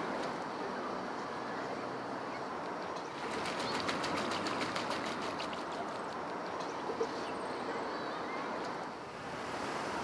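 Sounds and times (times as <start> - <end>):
wings splashing in water: 3.2 - 6.0.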